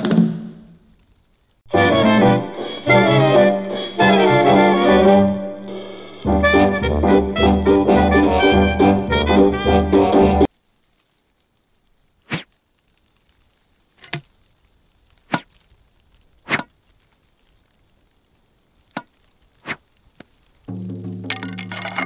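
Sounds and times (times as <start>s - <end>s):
music: 1.7s - 10.5s, 20.7s - 22.0s.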